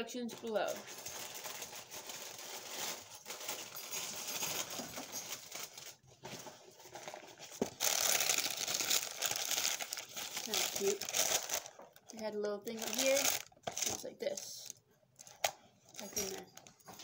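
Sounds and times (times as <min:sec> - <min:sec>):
paper packaging rustling: 0:00.3 - 0:17.0.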